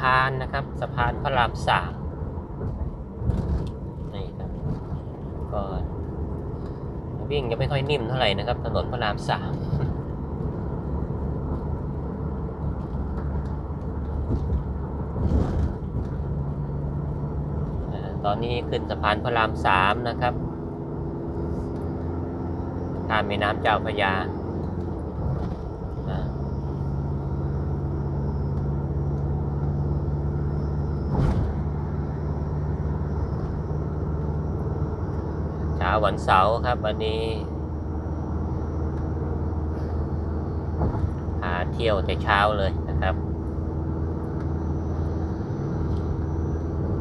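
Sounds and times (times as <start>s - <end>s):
car tyres and engine rumbling: 0.0s - 47.0s
sharp thump: 31.1s - 31.6s, 40.8s - 41.2s.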